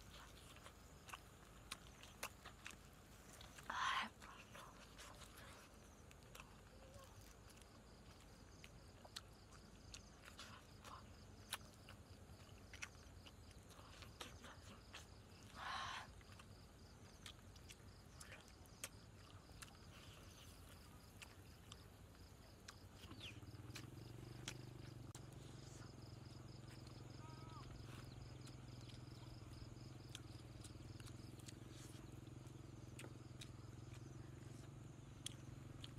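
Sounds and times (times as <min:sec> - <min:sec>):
chewing and crunching: 0:00.0 - 0:35.9
faint insect drone: 0:00.0 - 0:35.9.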